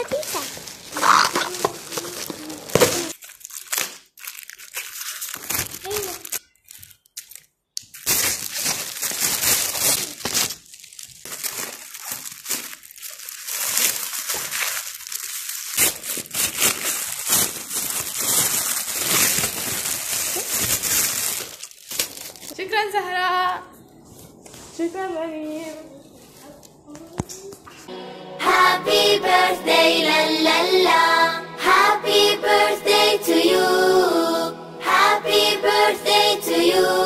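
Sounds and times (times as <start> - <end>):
foil and plastic wrapping crinkling: 0.0 - 22.9.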